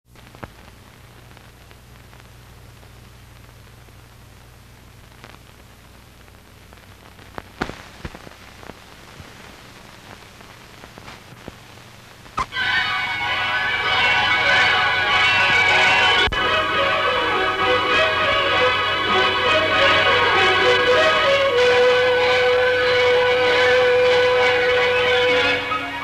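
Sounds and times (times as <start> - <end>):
film soundtrack hiss: 0.1 - 26.0
clicks and pops: 7.1 - 8.8.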